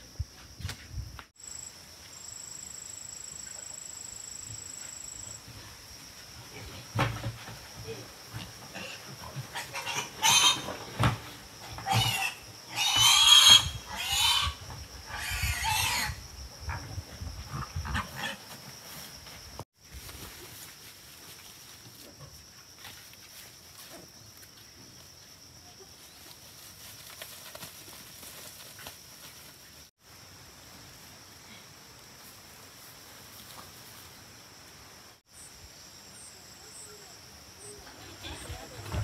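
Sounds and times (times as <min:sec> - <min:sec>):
pigs squealing: 0:08.8 - 0:10.8, 0:11.8 - 0:16.2.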